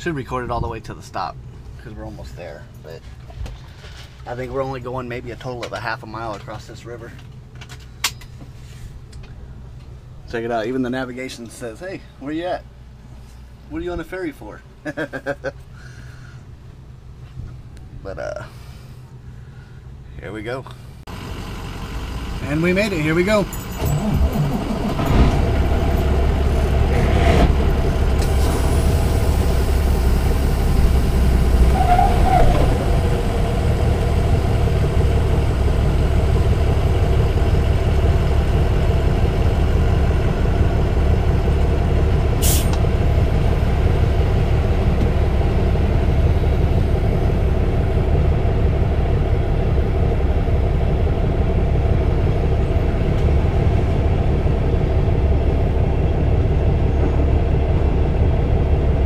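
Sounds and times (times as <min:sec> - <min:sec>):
diesel truck engine idling: 0:18.5 - 0:59.0
short hiss of air: 0:42.4 - 0:42.8.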